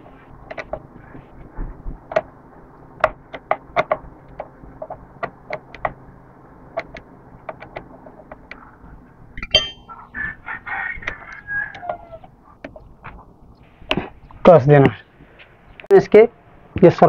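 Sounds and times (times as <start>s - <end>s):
rooster crowing: 9.8s - 12.3s.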